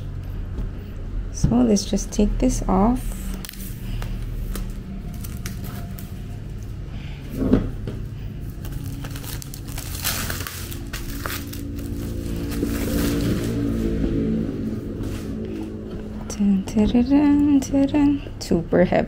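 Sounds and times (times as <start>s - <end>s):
plastic shrink wrap crinkling: 3.3s - 6.8s, 8.4s - 13.7s.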